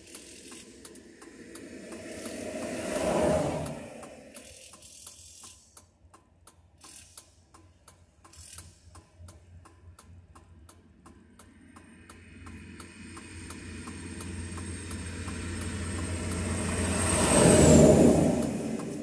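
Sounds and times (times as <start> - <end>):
vehicle passing on highway: 0.0 - 5.4, 10.2 - 19.0
hazard light flasher ticking: 0.0 - 19.0.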